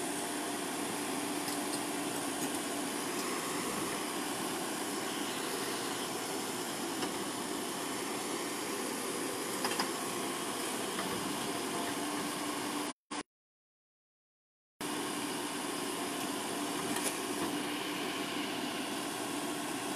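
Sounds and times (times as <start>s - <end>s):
truck diesel engine running: 0.0s - 12.9s.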